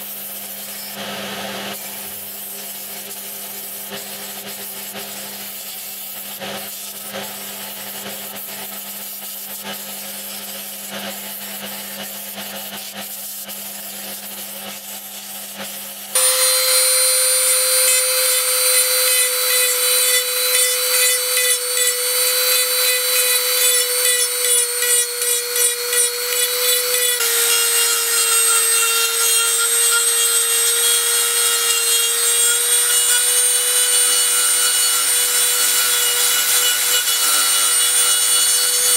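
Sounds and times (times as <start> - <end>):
rotary tool whining on wood: 16.1 - 38.9
electric disc sander running: 16.2 - 38.9.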